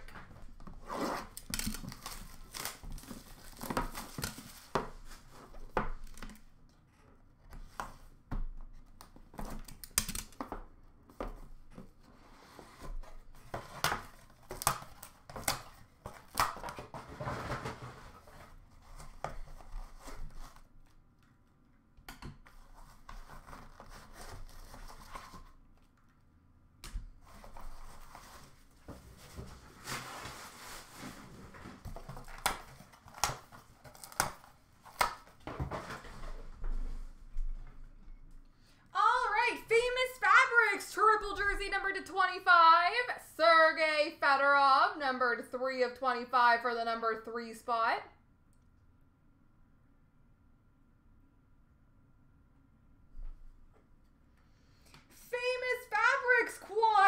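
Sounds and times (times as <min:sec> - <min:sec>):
packaging tearing and crinkling: 0:01.2 - 0:04.7.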